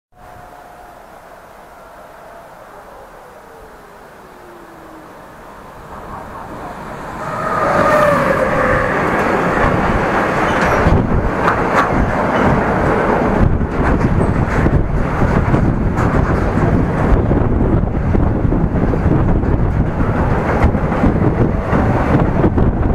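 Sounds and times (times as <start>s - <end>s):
freight train passing: 0.2s - 22.9s
wheels clacking on rail: 5.3s - 22.9s.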